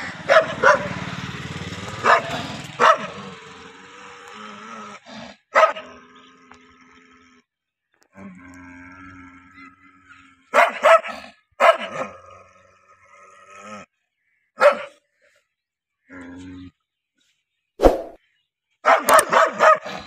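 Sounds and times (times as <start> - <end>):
dog barking: 0.2 - 1.0, 2.0 - 3.3, 5.5 - 5.9, 10.5 - 12.1, 14.6 - 15.0, 18.8 - 20.0
dog growling: 2.0 - 14.0.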